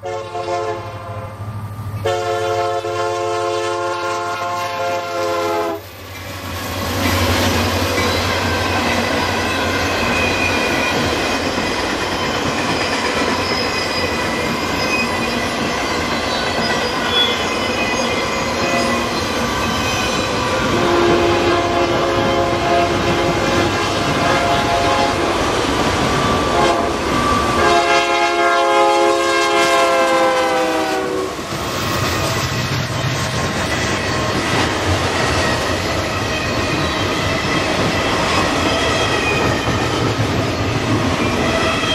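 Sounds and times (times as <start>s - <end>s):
locomotive air horn chord: 0.0s - 1.4s, 2.0s - 5.8s, 20.8s - 25.3s, 26.5s - 27.0s, 27.6s - 31.3s
freight train rumbling past: 0.0s - 41.9s.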